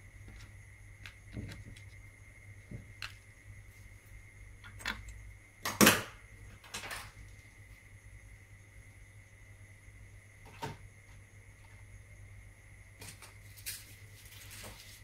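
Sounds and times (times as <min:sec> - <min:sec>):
faint steady hum: 0:00.0 - 0:15.0
clicks and taps on plastic mat: 0:00.3 - 0:02.0.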